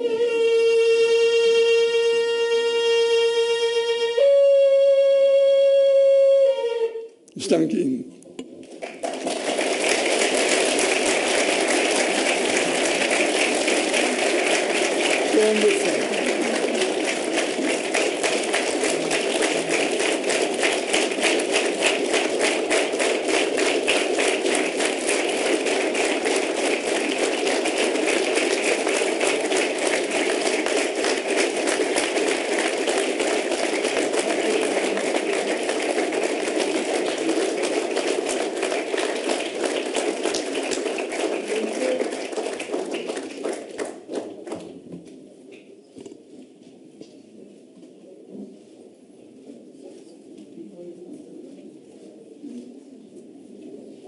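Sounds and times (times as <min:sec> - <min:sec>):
audience applauding: 0:08.6 - 0:44.8.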